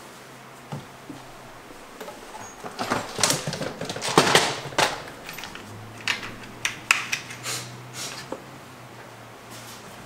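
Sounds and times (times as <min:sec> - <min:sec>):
plastic case clicking and knocking: 0:00.7 - 0:07.3
small jets shifting: 0:00.7 - 0:08.3.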